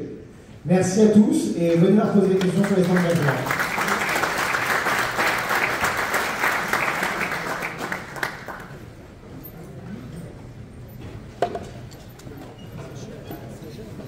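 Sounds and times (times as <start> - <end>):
audience applauding: 2.3 - 8.8.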